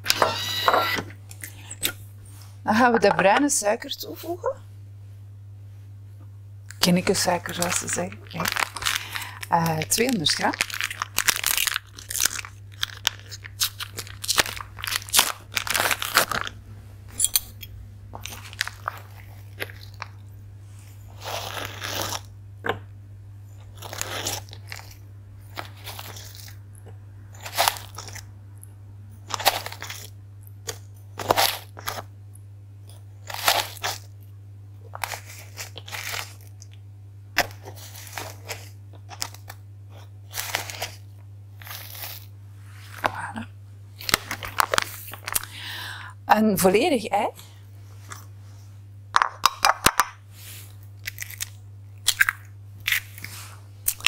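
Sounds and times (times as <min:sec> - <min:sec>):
spoon scraping sugar: 0:20.8 - 0:22.3, 0:37.4 - 0:42.3.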